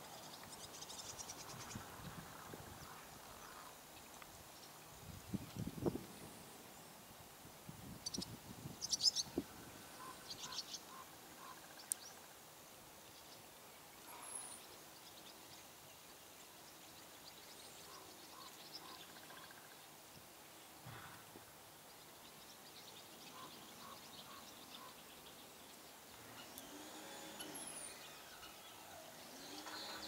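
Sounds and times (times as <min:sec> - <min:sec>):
birds chirping and calling: 0:08.1 - 0:12.2, 0:17.8 - 0:19.7, 0:23.0 - 0:25.5, 0:26.1 - 0:30.0.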